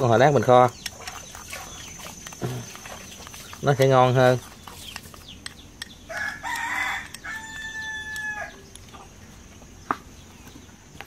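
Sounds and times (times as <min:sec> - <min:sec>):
rooster crowing: 0:06.1 - 0:08.6.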